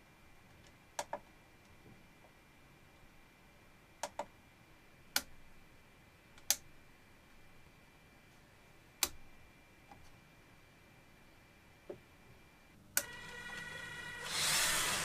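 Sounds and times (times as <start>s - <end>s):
faint high-pitched tone: 13.0s - 15.0s.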